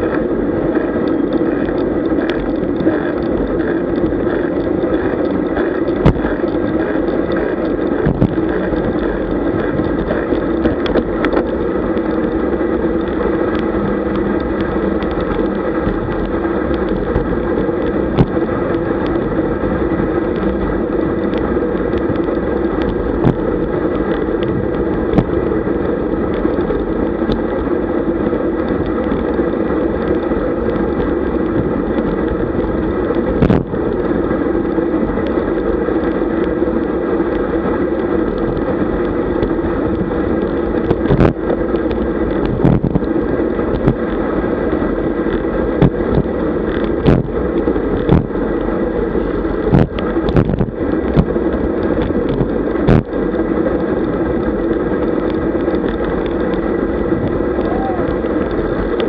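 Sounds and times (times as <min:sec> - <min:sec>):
tyre and road rumble: 0:00.0 - 0:59.0
wind rushing over microphone: 0:00.0 - 0:59.0.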